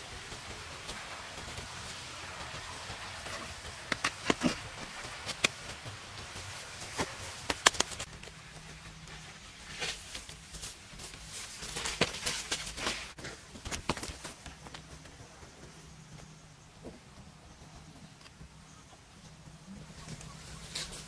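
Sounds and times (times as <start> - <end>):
soil scraping: 0.9 - 14.2, 19.8 - 21.0
stones clicking and knocking: 3.6 - 5.7, 6.9 - 8.1.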